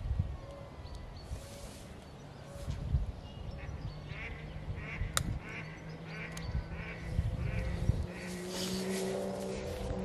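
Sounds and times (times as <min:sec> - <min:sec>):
steady low hum: 0:00.0 - 0:10.0
ducks quacking: 0:03.6 - 0:09.7.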